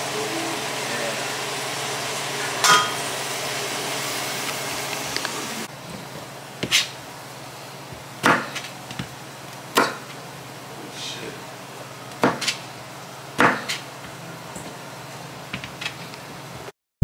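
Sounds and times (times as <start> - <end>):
vegetables sizzling in pan: 0.0 - 5.7
knife chopping on cutting board: 6.6 - 6.9, 8.2 - 9.1, 9.7 - 10.1, 12.2 - 12.6, 13.4 - 13.8.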